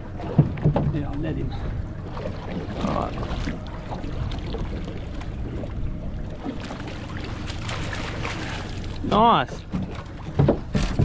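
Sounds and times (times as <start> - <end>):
outboard motor idling hum: 0.0 - 11.0
fish thrashing in water: 6.4 - 11.0.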